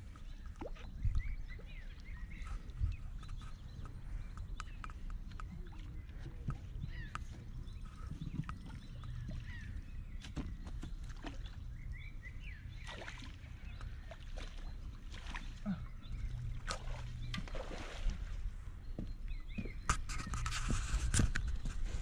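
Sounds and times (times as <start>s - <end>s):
small birds chirping: 0.0s - 22.0s
water sloshing and draining: 12.7s - 18.5s.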